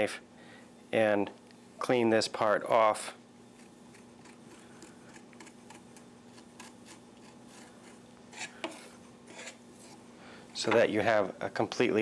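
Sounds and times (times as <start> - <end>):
knife scraping coconut: 3.5 - 10.0.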